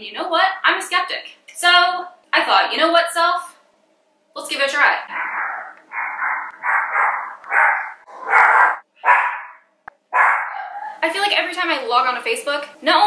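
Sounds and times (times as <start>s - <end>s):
dog barking: 5.2s - 11.0s.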